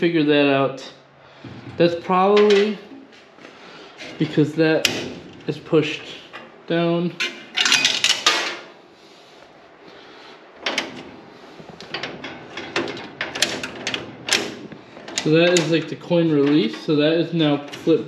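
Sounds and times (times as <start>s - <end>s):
metal clatter of coin mechanism: 7.2s - 8.7s.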